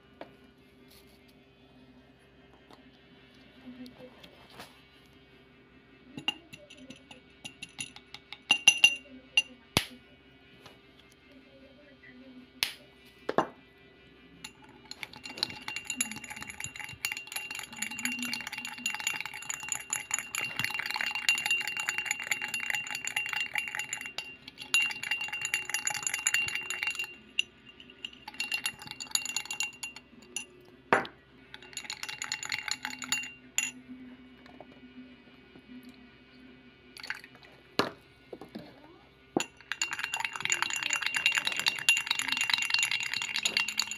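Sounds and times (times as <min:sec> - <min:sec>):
teaspoon clinking in glass: 0:06.2 - 0:09.5, 0:14.4 - 0:33.8, 0:37.0 - 0:37.2, 0:39.4 - 0:43.9.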